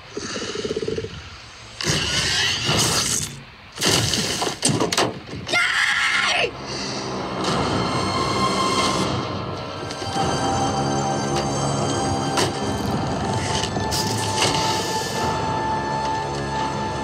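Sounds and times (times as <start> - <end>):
monster snarling: 0.0 - 3.2.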